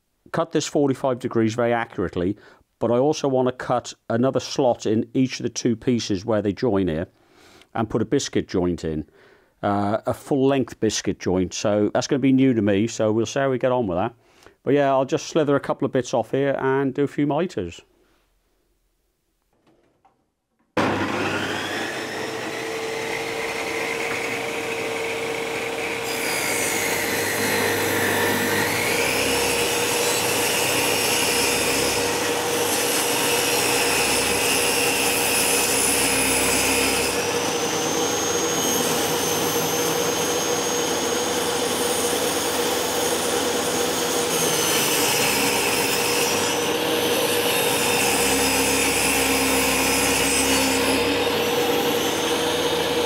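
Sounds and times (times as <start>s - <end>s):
table saw cutting wood: 20.8s - 53.0s.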